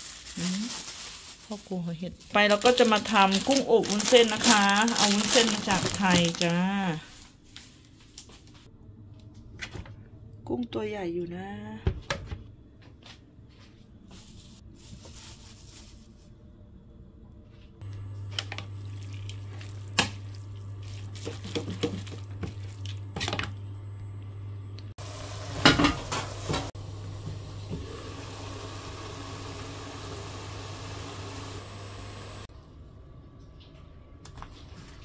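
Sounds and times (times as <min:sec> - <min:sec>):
pan sizzling: 0:25.0 - 0:32.5.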